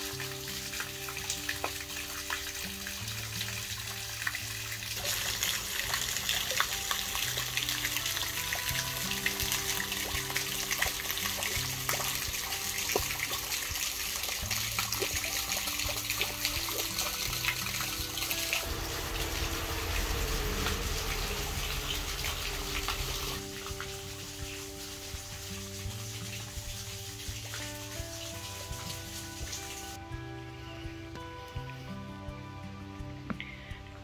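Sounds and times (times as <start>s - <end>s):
fountain water splashing into basin: 0.0s - 30.0s
soft background music: 0.0s - 34.0s
low rumble: 18.0s - 23.5s.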